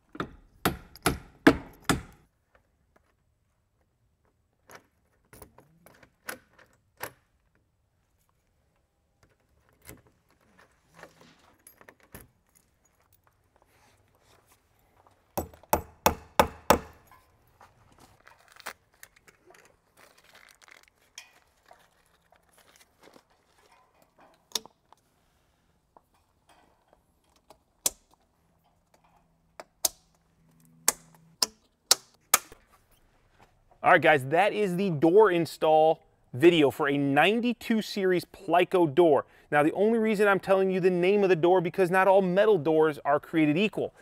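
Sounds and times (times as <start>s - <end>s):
plastic bag crinkling: 18.1s - 23.7s.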